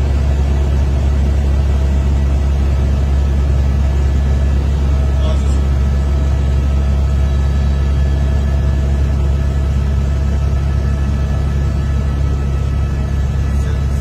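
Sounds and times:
helicopter in flight: 0.0 - 14.0.

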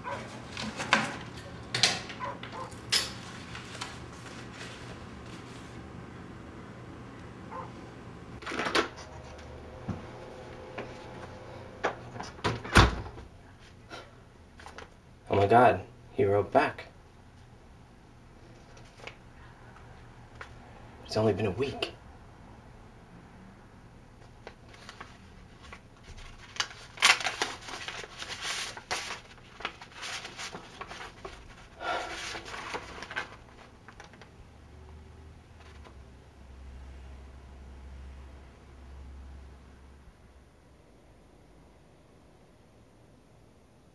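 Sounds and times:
paper rustling and crinkling: 0.0 - 5.9, 18.5 - 19.2, 24.2 - 34.3, 35.5 - 36.0
heavy door thud: 12.4 - 13.2
paper envelope tearing: 24.4 - 34.2.

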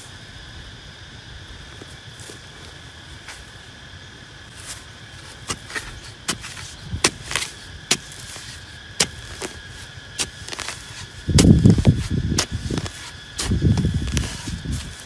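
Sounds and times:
digging tool chopping into soil: 5.4 - 15.0.

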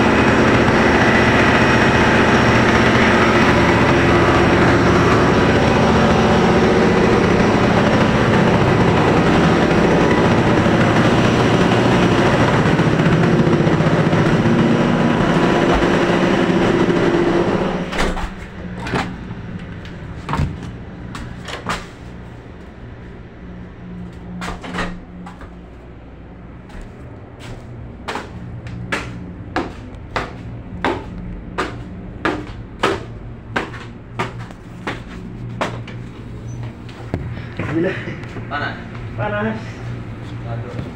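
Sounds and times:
low hum: 0.0 - 40.9
ship engine running loudly: 0.0 - 40.9
sharp knocks: 28.1 - 35.9.

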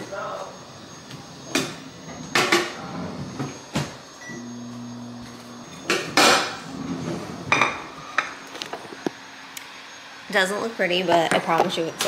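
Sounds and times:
microwave humming: 0.2 - 12.0
microwave beep: 4.2 - 6.0.

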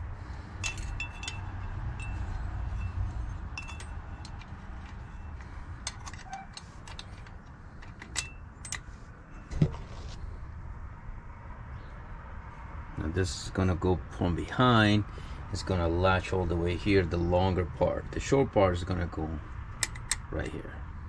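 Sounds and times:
metal springs clinking: 0.5 - 9.7.

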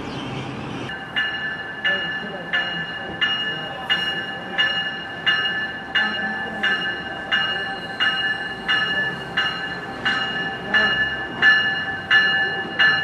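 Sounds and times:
train rumble: 0.0 - 13.0
railroad warning bell ringing: 0.9 - 13.0.

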